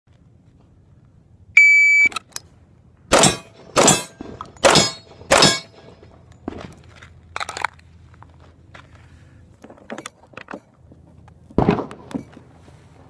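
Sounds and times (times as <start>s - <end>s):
electronic beep: 1.6s - 2.2s
pistol shots ringing: 3.1s - 6.0s.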